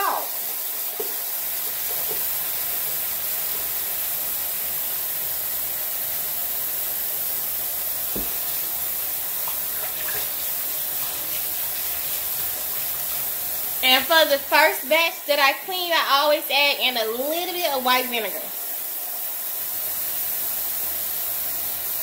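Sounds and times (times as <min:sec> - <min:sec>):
tap water splashing into sink: 0:00.8 - 0:03.3, 0:08.0 - 0:13.4
knock: 0:08.1 - 0:08.4.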